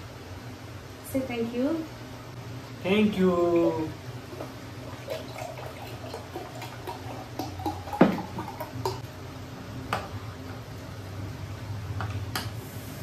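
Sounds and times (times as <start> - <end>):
juice trickling into glass: 4.8 - 9.0.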